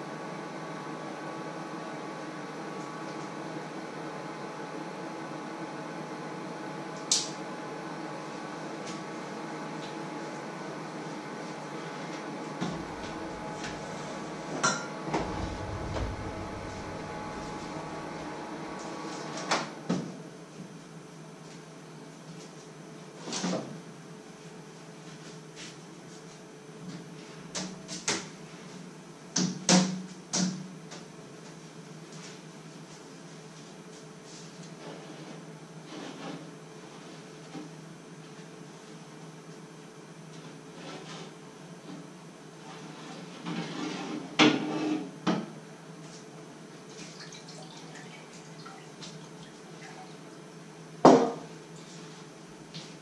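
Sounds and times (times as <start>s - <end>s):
steady low hum: 11.3s - 19.4s
kitchen knocks and clunks: 51.1s - 51.5s.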